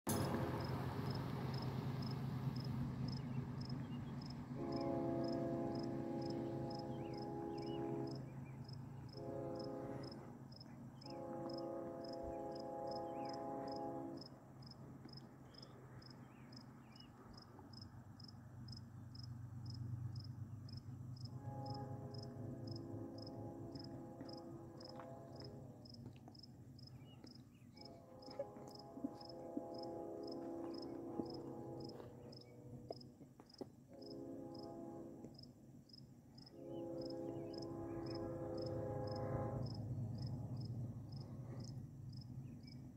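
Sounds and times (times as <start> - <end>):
distant train air horn: 0.1 - 1.8, 3.2 - 17.6, 21.0 - 26.2, 26.9 - 33.2, 33.8 - 35.7, 36.4 - 42.6
cricket chirping: 0.6 - 12.2, 12.9 - 24.9, 35.3 - 42.8.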